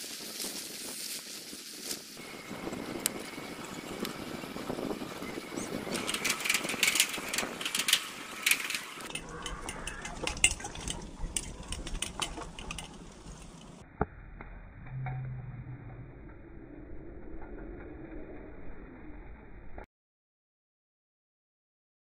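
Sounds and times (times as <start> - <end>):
bicycle rattling on boardwalk: 0.0 - 13.8
low hum: 2.2 - 19.9.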